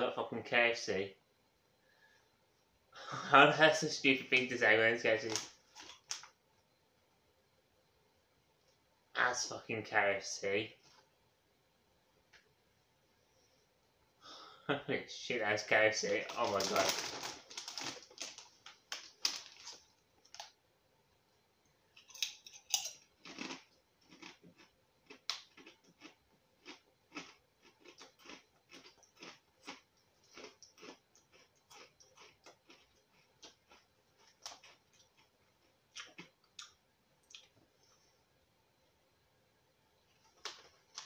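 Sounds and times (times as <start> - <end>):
person chewing crisps: 5.2 - 6.3, 16.0 - 20.6, 22.0 - 37.6.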